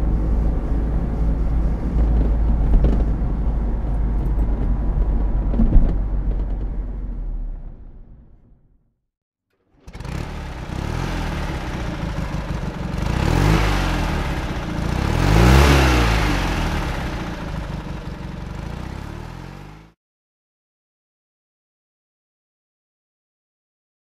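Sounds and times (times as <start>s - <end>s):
car engine revving: 9.7s - 20.0s.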